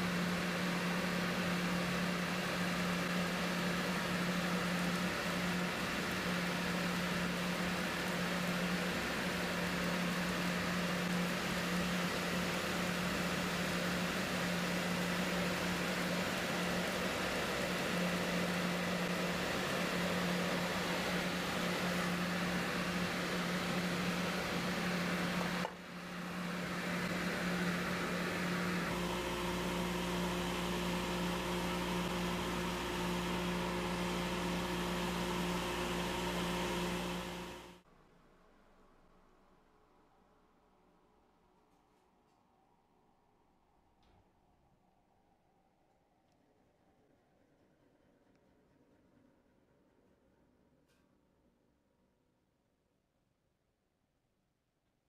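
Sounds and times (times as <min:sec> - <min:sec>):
drill press humming: 0:00.0 - 0:37.8
dust collector air rush: 0:00.0 - 0:37.8.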